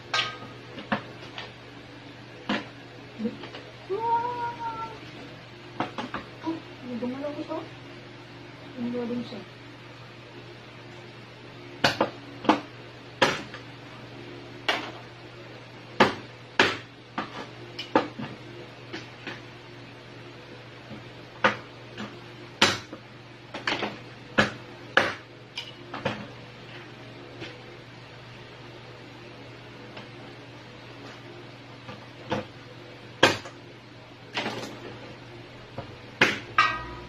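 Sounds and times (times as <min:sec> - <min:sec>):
low hum: 0:35.3 - 0:37.0.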